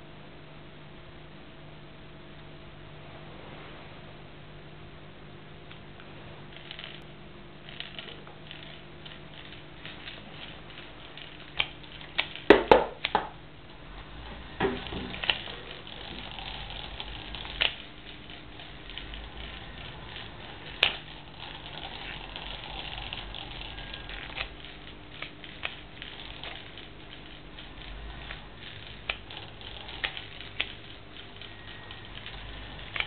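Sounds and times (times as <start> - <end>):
small electric motor whirring: 6.5 - 12.6, 13.7 - 33.0
parts clicking and knocking: 6.5 - 33.0.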